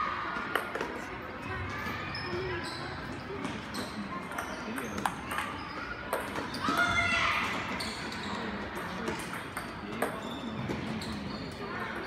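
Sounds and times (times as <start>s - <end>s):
background voices in a hall: 0.0s - 12.0s
table tennis ball hits: 4.3s - 6.8s, 8.8s - 10.2s.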